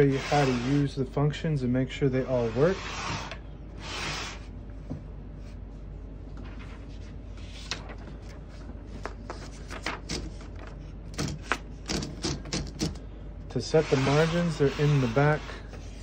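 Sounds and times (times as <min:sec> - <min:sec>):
typewriter mechanical clicks: 0:11.1 - 0:13.0
typewriter scraping on table: 0:13.8 - 0:15.8.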